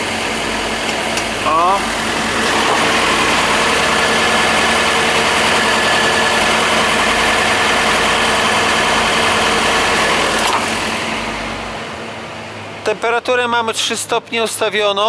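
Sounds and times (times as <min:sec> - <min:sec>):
refrigeration unit drone: 0:00.0 - 0:14.5.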